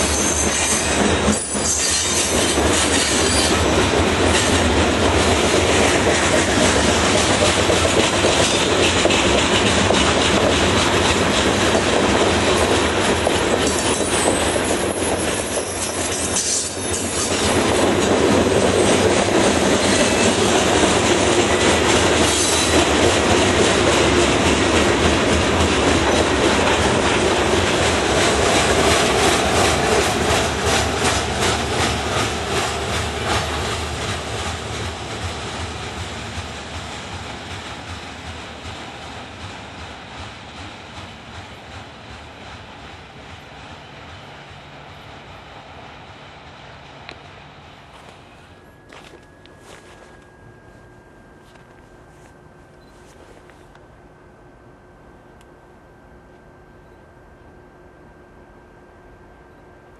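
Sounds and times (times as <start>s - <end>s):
clickety-clack over rail joints: 0.0s - 45.1s
train wheels rumbling on rail: 0.0s - 54.2s.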